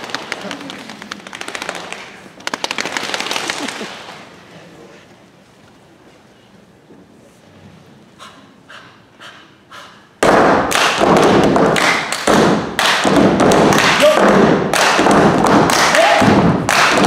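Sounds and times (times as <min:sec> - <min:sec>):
hand claps and body slaps: 0:00.0 - 0:04.2, 0:10.2 - 0:17.0
foot stomps: 0:10.2 - 0:17.0.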